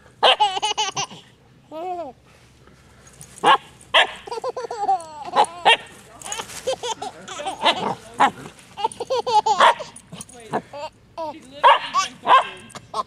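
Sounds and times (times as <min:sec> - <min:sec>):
puppy barking and yipping: 0:00.2 - 0:01.2, 0:03.4 - 0:06.4, 0:07.4 - 0:10.6, 0:11.6 - 0:13.0
baby giggling and squealing: 0:00.2 - 0:02.2, 0:04.1 - 0:11.4.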